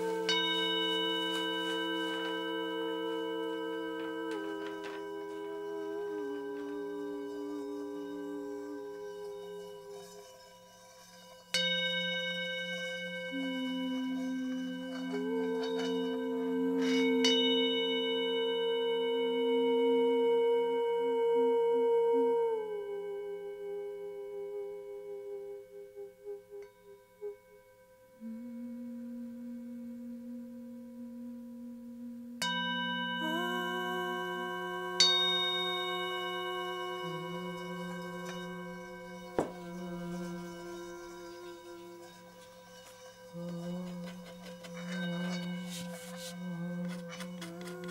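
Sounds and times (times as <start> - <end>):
ambient bell-like music: 0.0 - 21.6, 32.4 - 47.9
low sustained tone: 0.0 - 47.9.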